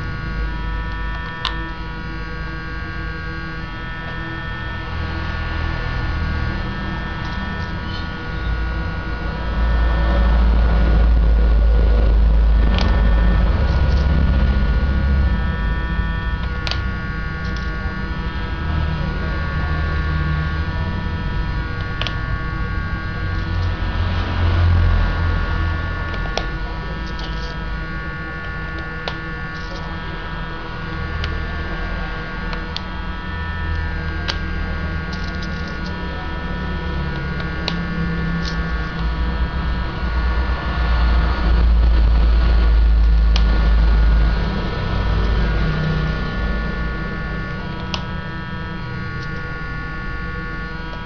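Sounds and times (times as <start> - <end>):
electrical hum: 0.0 - 51.0
low rumble: 3.6 - 28.3.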